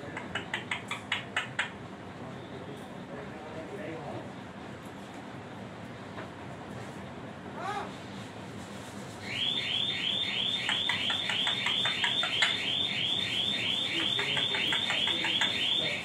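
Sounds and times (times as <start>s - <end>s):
parakeet shrill calls: 9.2s - 16.0s.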